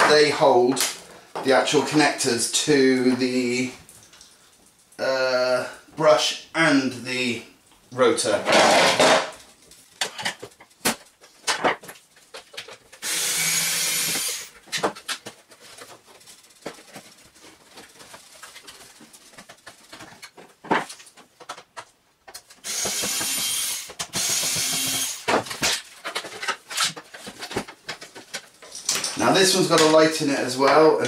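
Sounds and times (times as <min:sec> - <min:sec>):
plastic parts clicking and knocking: 0:08.5 - 0:30.0
electric screwdriver whirring: 0:13.0 - 0:14.5, 0:22.6 - 0:25.3.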